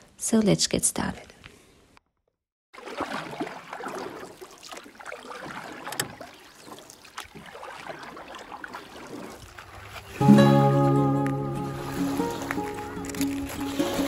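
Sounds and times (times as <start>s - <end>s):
small waves lapping on stones: 2.8s - 10.2s, 11.8s - 14.0s.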